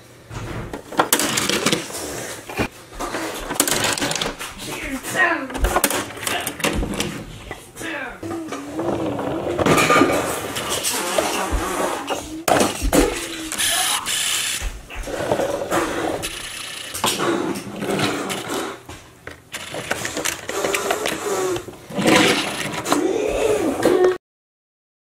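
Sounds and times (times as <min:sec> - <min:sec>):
plastic case sliding open: 0:00.5 - 0:04.8, 0:19.6 - 0:23.0
toy cars clicking and rattling: 0:01.0 - 0:02.1, 0:03.5 - 0:04.4, 0:05.7 - 0:07.1, 0:15.3 - 0:23.0.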